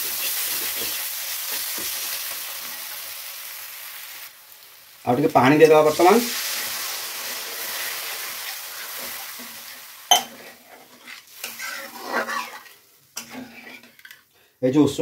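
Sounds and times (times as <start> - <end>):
masala sizzling in a pan: 0.0 - 14.6
stirring scrapes and knocks: 7.6 - 14.3
spoon clanking against a pan: 10.1 - 10.6.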